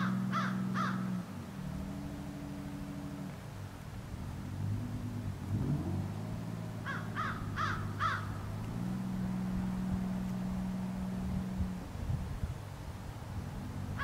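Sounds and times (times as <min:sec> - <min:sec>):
bird calls: 0:00.0 - 0:01.2, 0:06.8 - 0:08.5
distant boat engine droning: 0:00.0 - 0:14.0.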